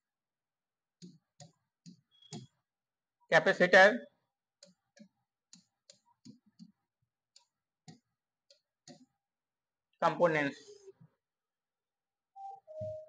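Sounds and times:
fingertips tapping touchscreen: 1.0 - 2.6, 4.6 - 9.1.

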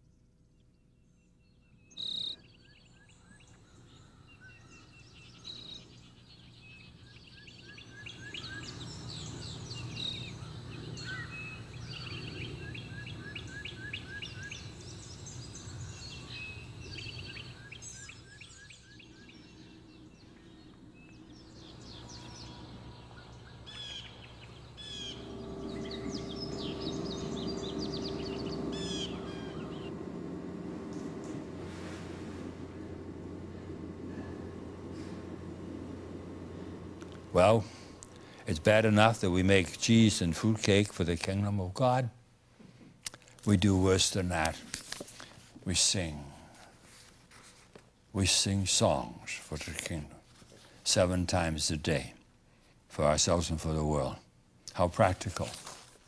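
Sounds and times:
songbirds singing: 0.0 - 41.7
low steady hum: 0.0 - 56.0
steady low tone: 18.8 - 41.2.

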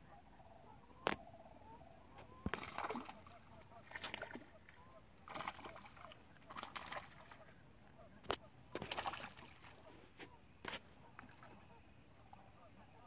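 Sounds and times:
distant cranes calling: 0.0 - 13.0
fish splashing in water: 2.5 - 7.5, 8.7 - 9.8.

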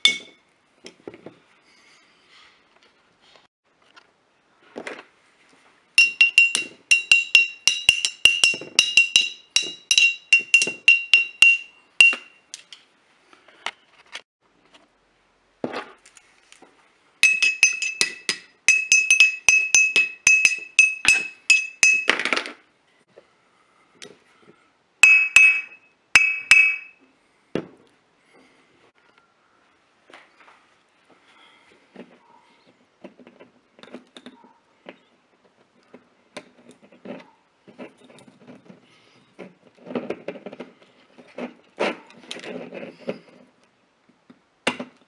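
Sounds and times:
glass bottles clinking rhythmically: 6.0 - 12.4, 17.2 - 22.2, 25.0 - 27.0.

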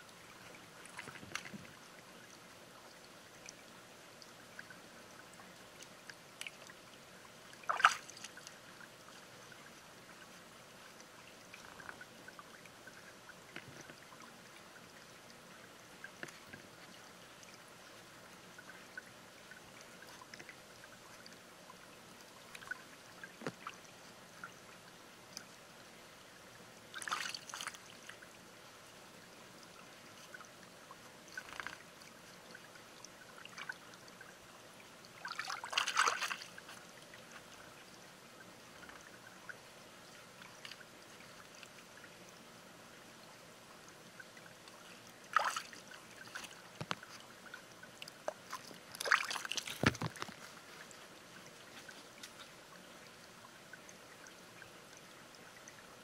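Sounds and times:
small water splashes: 0.0 - 56.0
stream trickling over rocks: 0.0 - 56.0
faint clicks: 5.4 - 6.8.

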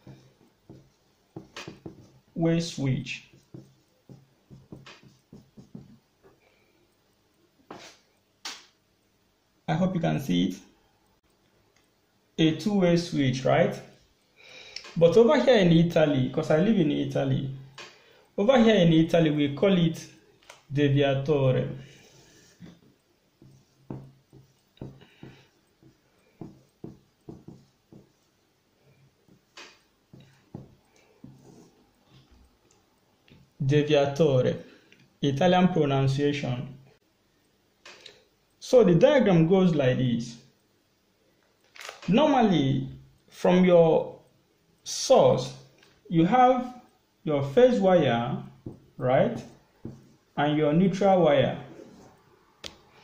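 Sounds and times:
marker scratching on paper: 0.0 - 2.2, 3.0 - 6.0, 7.7 - 8.0, 23.4 - 28.3, 30.5 - 31.7.

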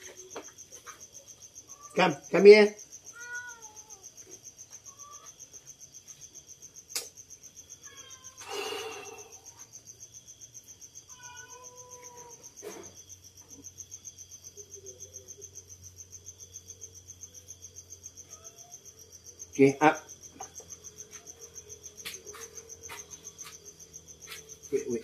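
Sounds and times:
insects chirping: 0.0 - 25.0.

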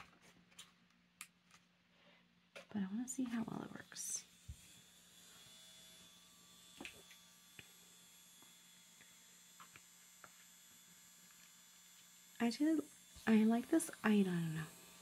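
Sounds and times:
nail drill humming: 4.2 - 15.0.

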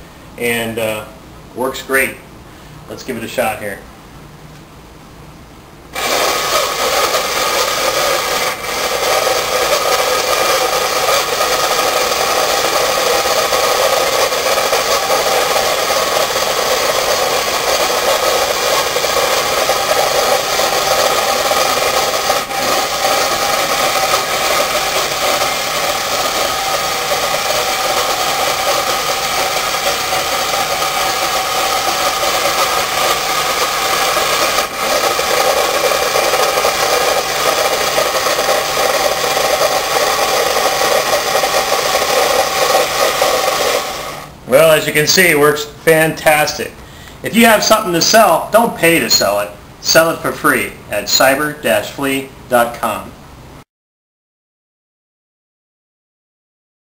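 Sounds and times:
toy motor and gears whirring: 7.7 - 44.1.

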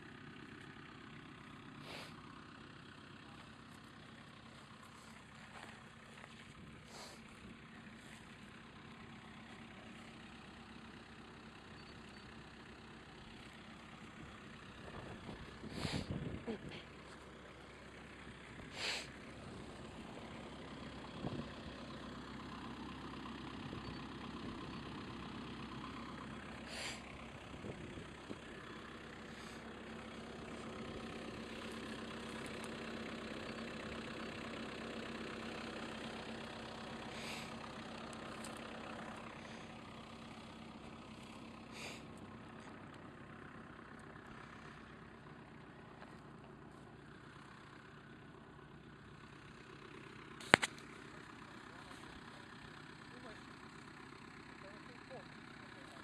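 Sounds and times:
car engine running: 0.0 - 56.0.

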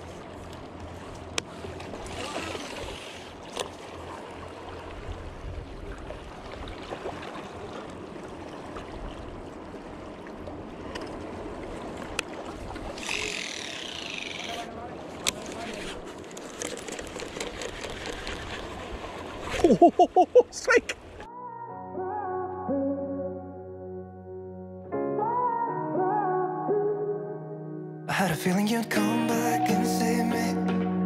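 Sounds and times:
small waves lapping on rocks: 1.4 - 19.8
wind rumbling on microphone: 4.8 - 6.9
fishing reel spool whirring: 12.9 - 14.7.

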